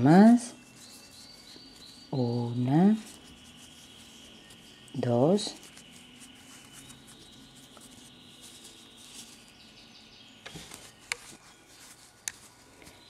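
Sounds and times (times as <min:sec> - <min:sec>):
yarn rustling with crochet hook: 0:00.0 - 0:13.0.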